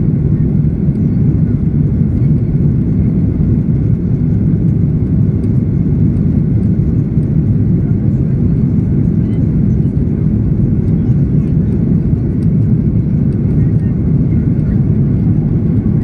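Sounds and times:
jet engine rumble in cabin: 0.0 - 16.0.

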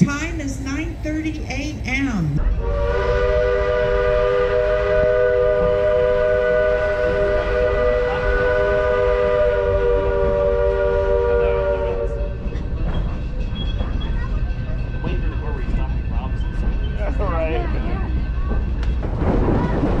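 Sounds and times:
train rumbling: 0.0 - 20.0
steam whistle chord: 2.6 - 12.3.

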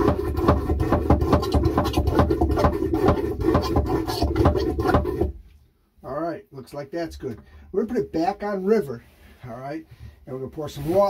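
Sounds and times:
toilet hand pump strokes: 0.0 - 5.4.

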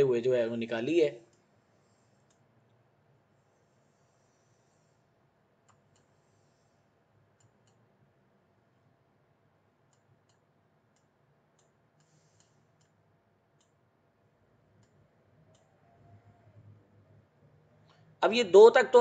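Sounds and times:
computer mouse clicks: 5.6 - 6.6, 7.4 - 7.9, 9.8 - 13.0, 14.7 - 16.4.

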